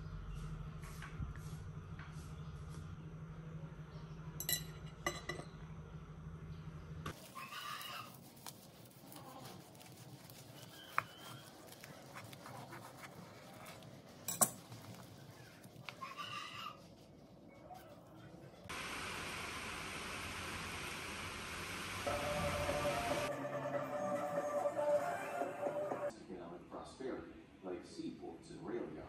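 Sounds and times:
ceramic plate clinking: 4.4 - 5.5
plastic wrap crinkling: 7.1 - 16.1
knife cutting on wooden board: 7.2 - 15.0.

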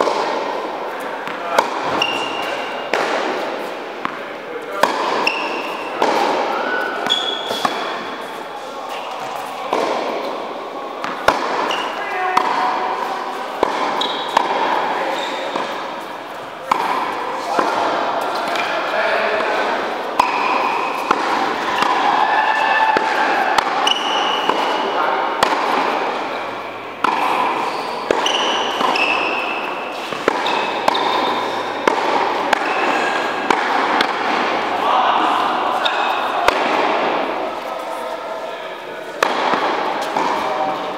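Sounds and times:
tennis ball hit by racket: 0.0 - 8.1, 9.2 - 10.4, 11.0 - 18.8, 19.4 - 37.7, 39.1 - 40.9
tennis ball bouncing: 0.0 - 8.3, 9.2 - 10.4, 11.0 - 18.8, 19.4 - 34.8, 35.8 - 37.7, 39.1 - 40.9
shoe squeaks on court: 1.9 - 2.8, 7.0 - 9.2, 13.9 - 14.4, 15.0 - 15.7, 27.6 - 31.8.

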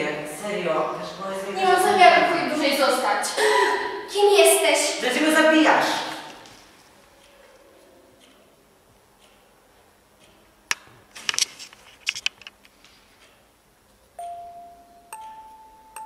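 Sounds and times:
sharp clicks and knocks: 10.2 - 13.4
ringing chime tones: 14.2 - 16.0.

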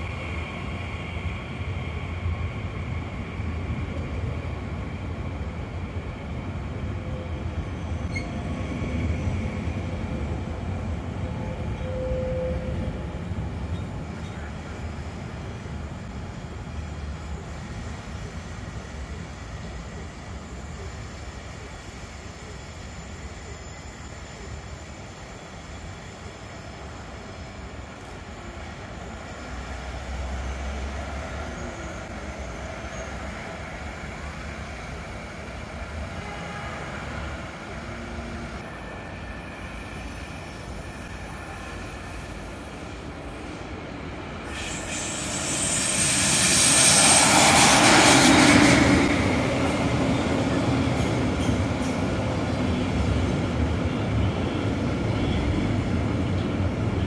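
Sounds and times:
train rolling past: 0.0 - 57.0
high hissing screech: 44.4 - 49.4.

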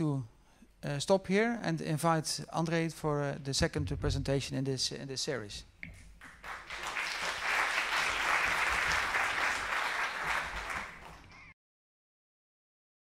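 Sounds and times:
audience applauding: 6.2 - 11.5.

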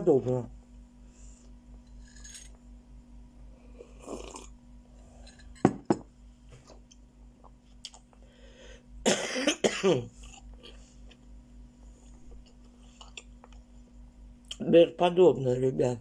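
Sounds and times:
person sipping from a cup: 3.8 - 5.5.

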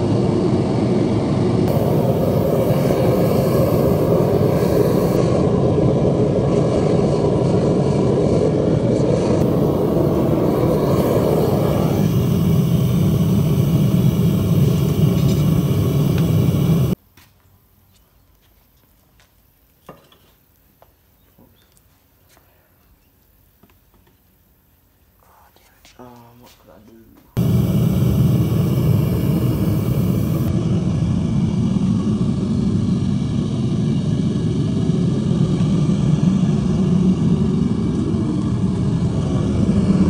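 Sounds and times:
gas burner rushing: 0.0 - 17.0, 27.4 - 40.0.

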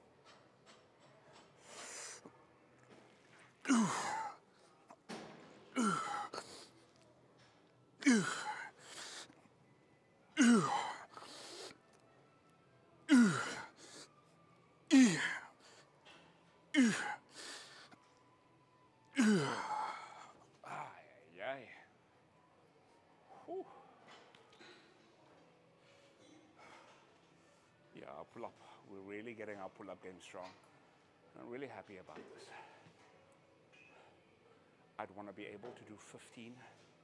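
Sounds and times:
man grunting: 3.7 - 4.3, 5.8 - 6.3, 8.0 - 8.7, 10.4 - 11.0, 13.1 - 13.7, 14.9 - 15.4, 16.8 - 17.2, 19.2 - 19.9.

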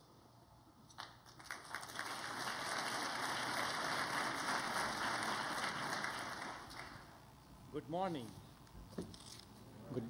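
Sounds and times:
audience applause: 1.3 - 7.2.

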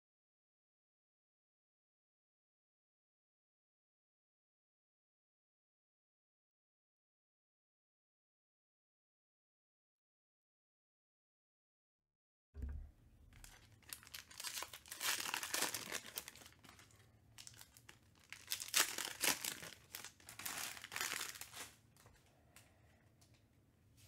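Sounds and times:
foil wrapper tearing and crinkling: 13.3 - 22.1.

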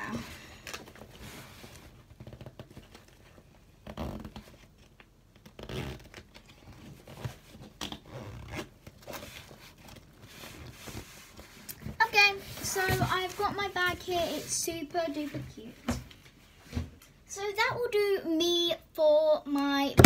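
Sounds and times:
backpack zip being pulled: 5.6 - 6.2.

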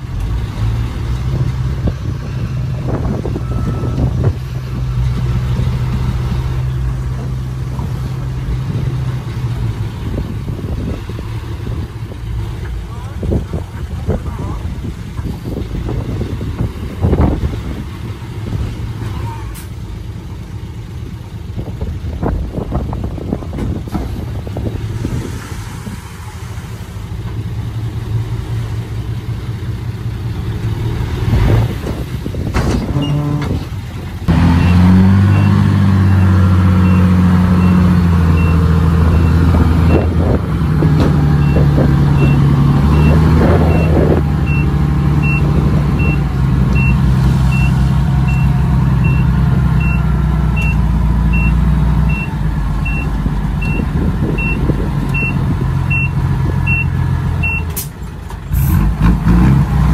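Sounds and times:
diesel engine of heavy machinery: 0.0 - 59.9
reversing alarm beeping: 3.4 - 4.1, 34.5 - 37.8, 41.4 - 50.0, 50.6 - 53.8, 55.2 - 57.7.

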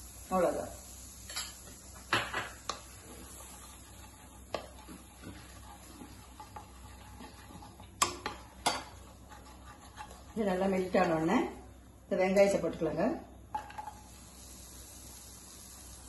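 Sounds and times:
wooden spatula scraping a pan: 2.7 - 11.3.

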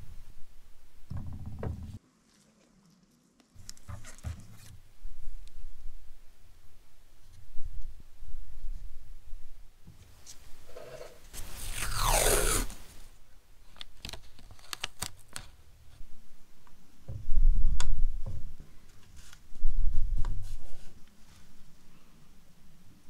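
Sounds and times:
paper and tape crinkling: 2.2 - 4.8, 13.6 - 15.6
masking tape ripping: 11.5 - 12.9.

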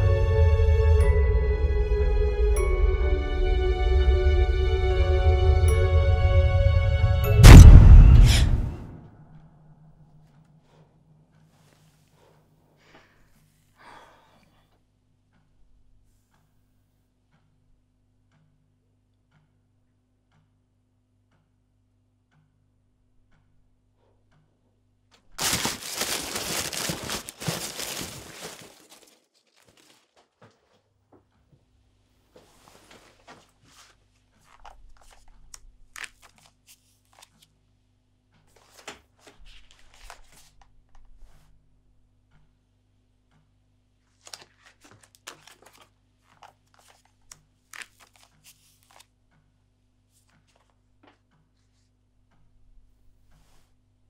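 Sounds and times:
low room hum: 0.0 - 54.0
plastic bags rustling: 25.4 - 30.4
paper pages flipping: 25.4 - 30.7, 32.6 - 37.5, 38.5 - 40.7, 44.1 - 49.1, 50.2 - 50.8.

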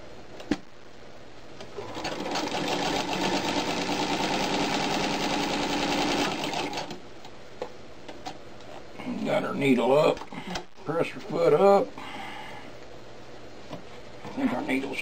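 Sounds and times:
sewing machine stitching: 1.8 - 7.0.

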